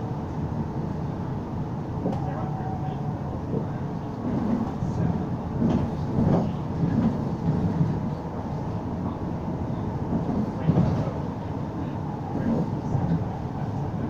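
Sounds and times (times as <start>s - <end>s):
bus engine and road rumble: 0.0s - 14.0s
knocks and rattles from bus body: 3.4s - 8.2s, 10.0s - 11.2s.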